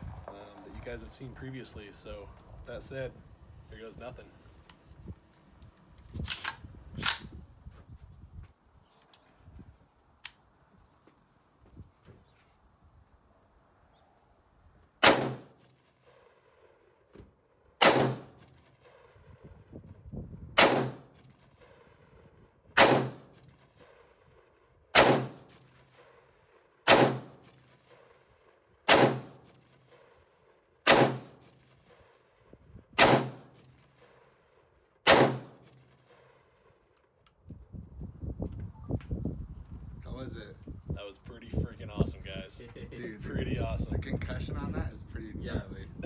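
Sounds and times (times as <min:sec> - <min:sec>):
gunshots with echo: 0:15.0 - 0:15.6, 0:17.8 - 0:19.2, 0:20.6 - 0:21.9, 0:22.8 - 0:24.1, 0:25.0 - 0:26.1, 0:26.9 - 0:28.1, 0:28.9 - 0:30.1, 0:30.8 - 0:32.1, 0:33.0 - 0:34.2, 0:35.1 - 0:36.3.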